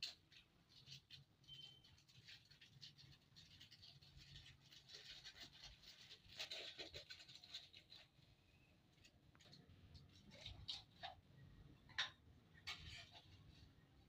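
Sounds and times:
faint scratchy rustling: 0.3s - 11.2s.

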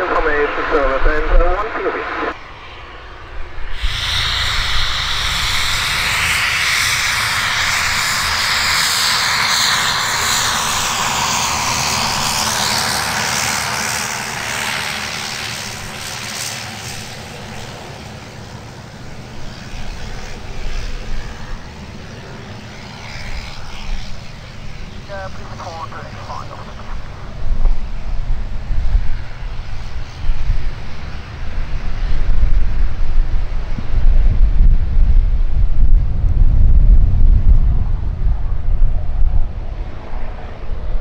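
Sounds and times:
high whine sliding down: 0.0s - 13.6s
aircraft passing: 0.0s - 41.0s.

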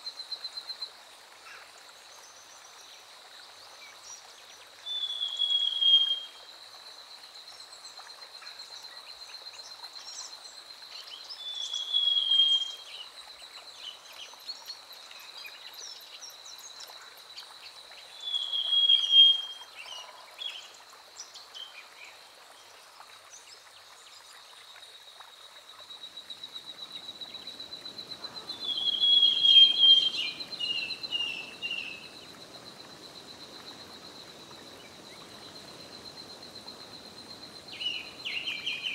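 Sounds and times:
bird whistled call: 4.9s - 6.3s, 18.2s - 19.6s, 28.4s - 32.0s.

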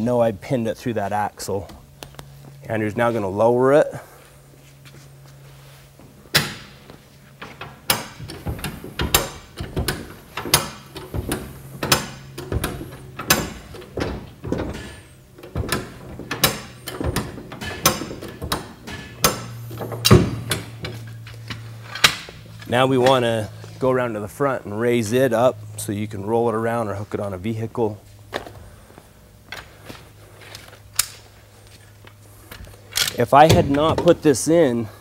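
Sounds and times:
jack clanking and clicking: 7.4s - 23.4s.

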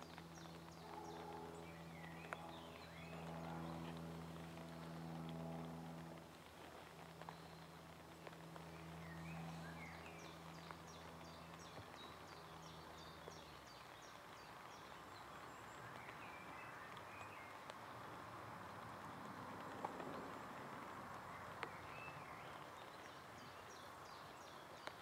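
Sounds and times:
low hum: 0.0s - 14.5s
small songbird singing: 7.2s - 17.7s, 21.3s - 25.0s.

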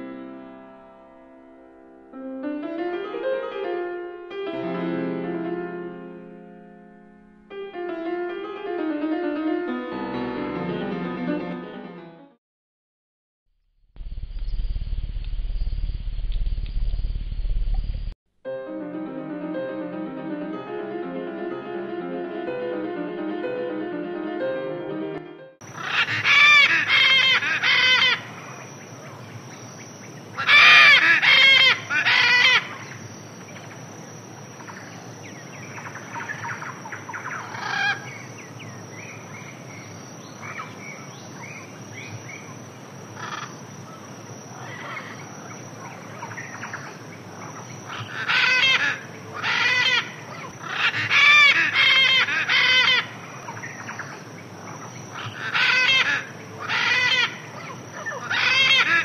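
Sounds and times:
background hiss: 25.6s - 59.0s
birds calling: 25.6s - 59.0s.

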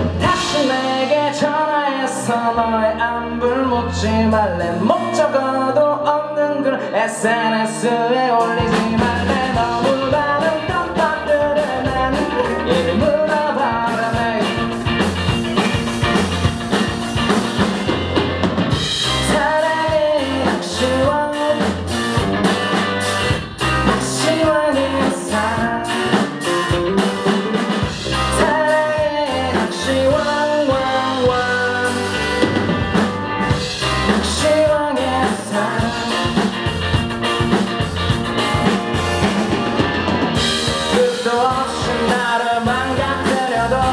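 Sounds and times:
drum kit: 0.0s - 2.5s, 8.4s - 43.9s
man singing: 0.0s - 15.1s, 19.0s - 22.2s, 23.8s - 26.7s, 27.8s - 32.5s, 33.5s - 36.6s, 40.6s - 43.9s
electric guitars: 0.0s - 43.9s.

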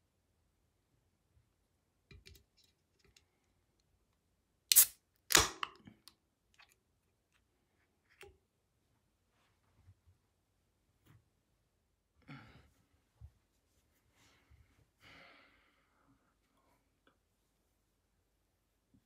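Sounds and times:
can opening crack: 4.7s - 5.8s.

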